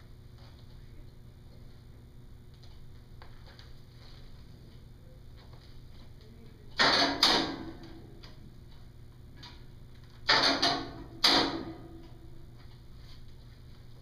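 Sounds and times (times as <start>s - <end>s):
x-ray equipment knocks and rattles: 6.8s - 8.2s, 10.0s - 12.3s.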